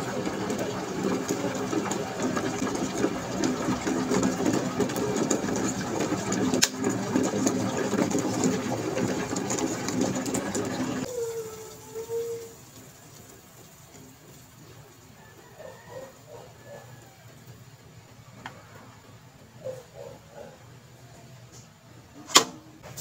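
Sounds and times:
electric kettle rumbling: 0.0 - 19.2
kettle sharp click: 22.3 - 22.6.

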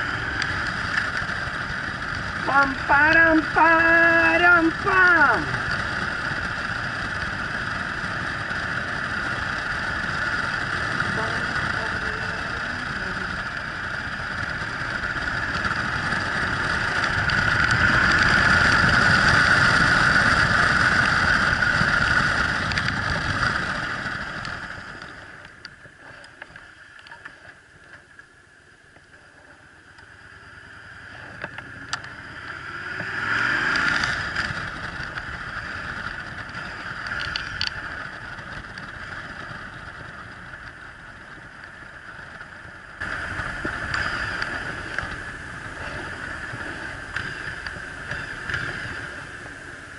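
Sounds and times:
motorcycle engine running: 0.0 - 49.9
wind rush on microphone: 33.0 - 49.9.

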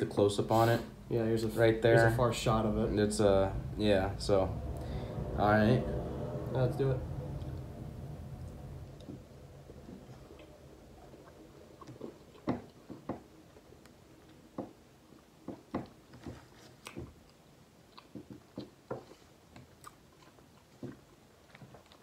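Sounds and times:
people chewing: 9.0 - 22.0.

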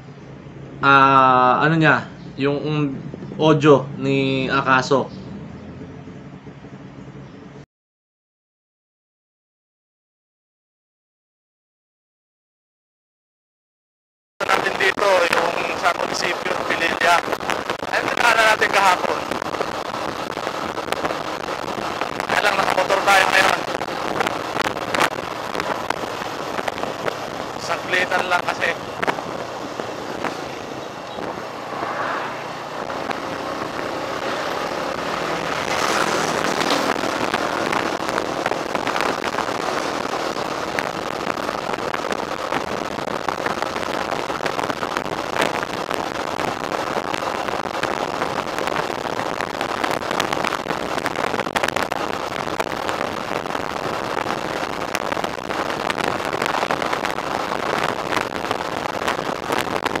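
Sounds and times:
wind and road noise: 0.0 - 7.7, 14.4 - 60.0
motorcycle engine running: 5.1 - 7.6, 23.6 - 44.2
sharp crackles: 14.4 - 60.0.

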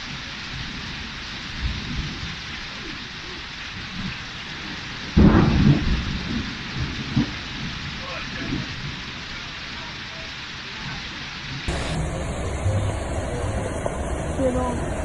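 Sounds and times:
torrential rain hissing: 0.0 - 15.0
loud low rumble: 11.7 - 15.0.

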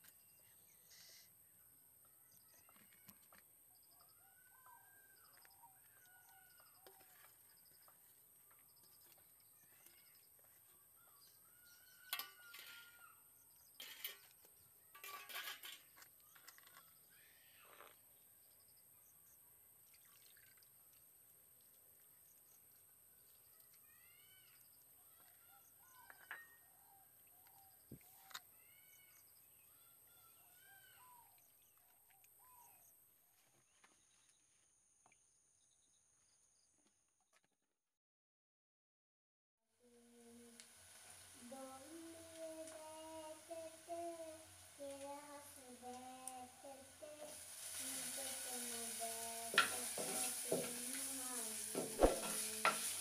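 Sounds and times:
faint birdsong: 0.0 - 21.0, 21.6 - 36.9
hand splashing liquid in a basin: 19.8 - 21.1.

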